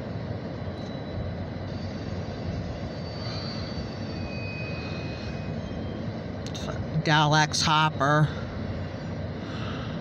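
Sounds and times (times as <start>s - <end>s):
train wheels rumbling on track: 0.0s - 10.0s
faint high-pitched squeals: 0.6s - 6.2s.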